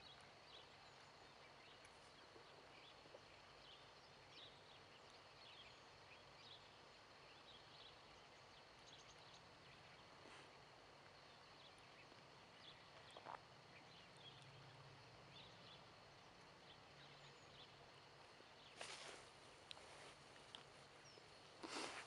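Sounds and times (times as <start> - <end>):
low steady hum: 0.0 - 22.0
brief rustle: 18.7 - 20.7, 21.6 - 22.0
tiny ticks: 19.6 - 20.7.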